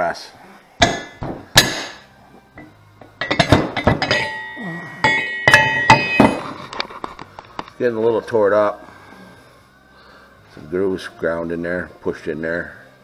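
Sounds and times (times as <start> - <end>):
heavy steel parts clanking: 2.6 - 6.9.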